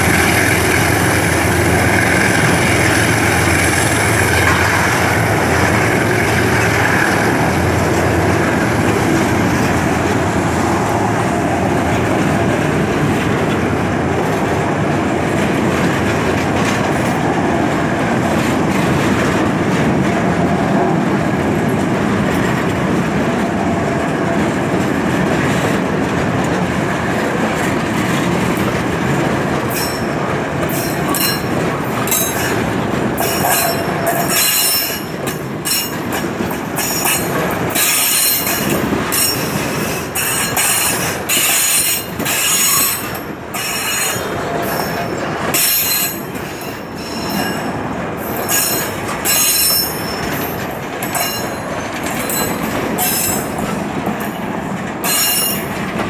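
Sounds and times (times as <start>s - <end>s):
train wheels rumbling on rails: 0.0s - 56.0s
metallic wheel squeals: 48.5s - 51.5s.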